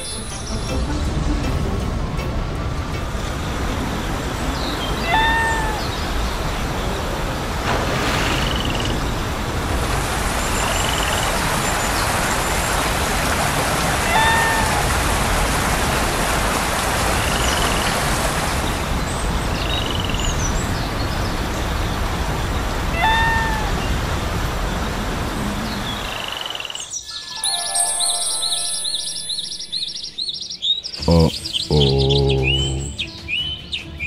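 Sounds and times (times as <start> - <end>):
rain falling: 2.7 - 19.7, 20.5 - 26.2.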